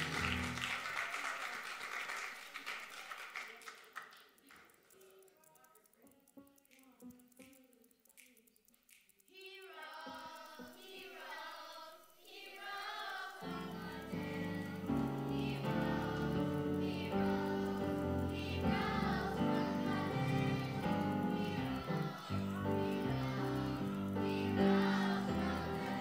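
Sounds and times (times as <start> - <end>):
children's choir singing: 0.0 - 2.0, 9.3 - 26.0.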